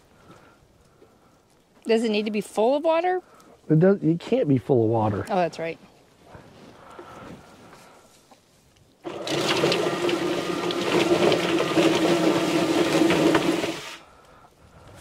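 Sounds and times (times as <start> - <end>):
electric motor humming and rattling: 9.0 - 14.0.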